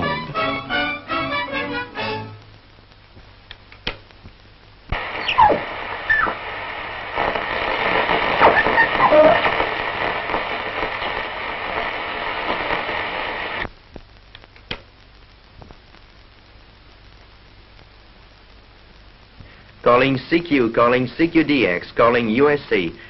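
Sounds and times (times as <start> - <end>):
radio static hiss: 0.0 - 23.0
faint clicks: 2.4 - 6.5, 13.5 - 19.9
radio whistles and squeals: 5.0 - 6.6, 7.4 - 11.2.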